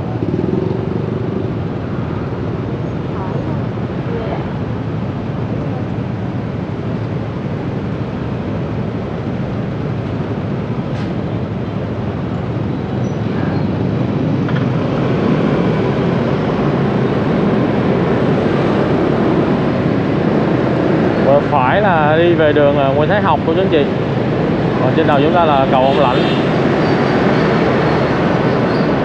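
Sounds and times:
street traffic noise: 0.0s - 29.0s.

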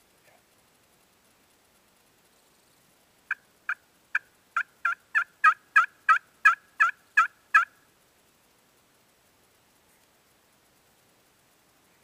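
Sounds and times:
turkey call hen yelps: 3.3s - 7.8s.

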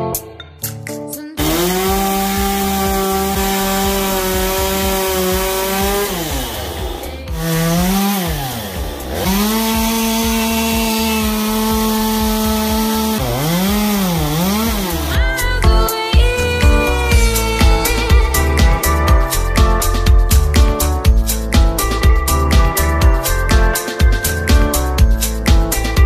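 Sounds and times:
chainsaw cutting into log: 1.4s - 15.5s.

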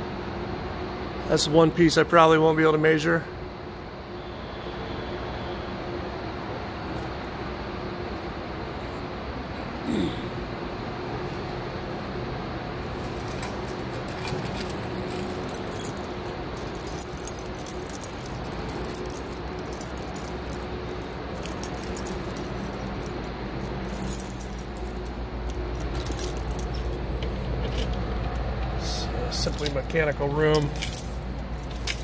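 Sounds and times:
ventilation hum: 0.0s - 32.0s
light clicks and jingles: 13.0s - 32.0s.

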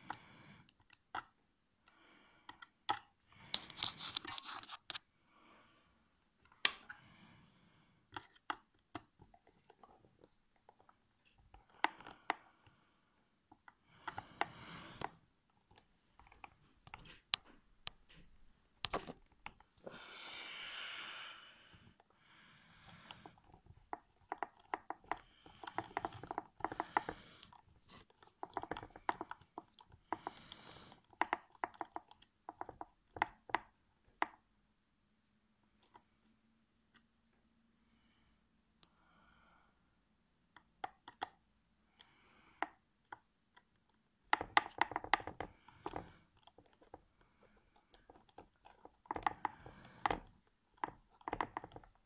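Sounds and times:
screwdriver clicking and creaking: 13.5s - 19.7s, 22.9s - 34.4s, 42.6s - 52.0s.

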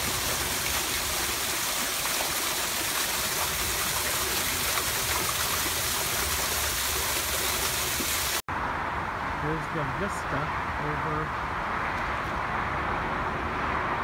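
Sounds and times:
small waterfall splashing: 0.0s - 8.4s.

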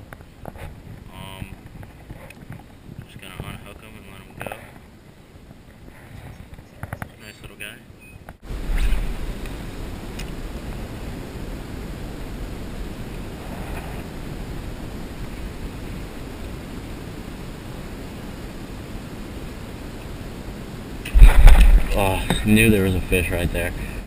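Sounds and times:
wind rumble on microphone: 0.0s - 7.2s, 8.4s - 24.0s.

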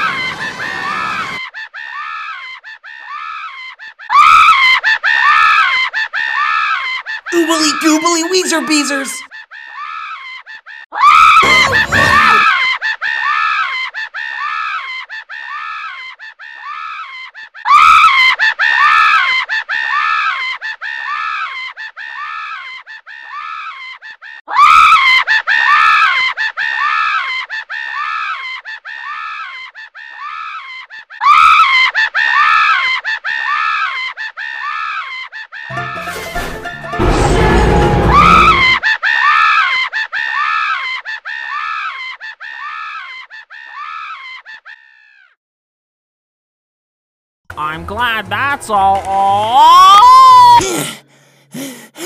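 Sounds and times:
cartoon scream with echo: 7.4s - 9.2s, 10.9s - 12.7s, 37.0s - 39.7s, 49.5s - 50.8s.

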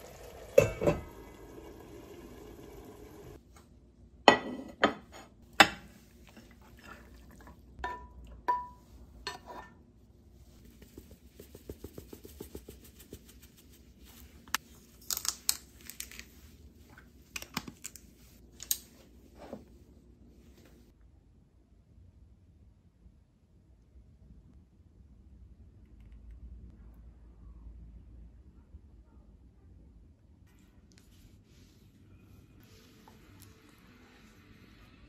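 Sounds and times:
dried herbs shaken on: 10.6s - 14.4s.

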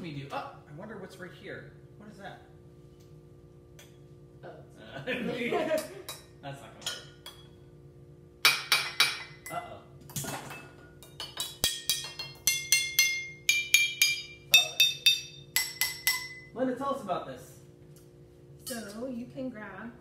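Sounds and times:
glasses struck with a beater: 8.4s - 9.6s, 10.5s - 16.6s.

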